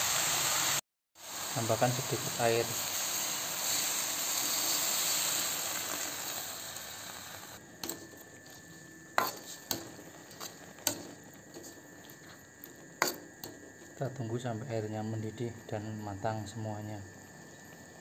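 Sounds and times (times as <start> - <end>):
water sizzling in hot wok: 0.0 - 7.6.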